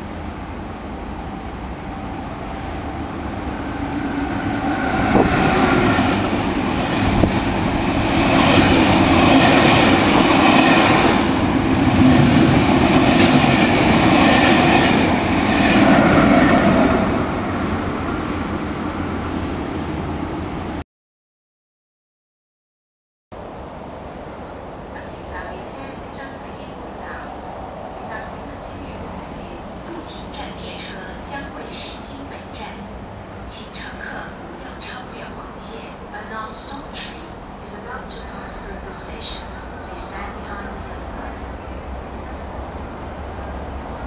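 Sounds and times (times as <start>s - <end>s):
train passing at speed: 0.0s - 20.8s, 23.4s - 44.0s.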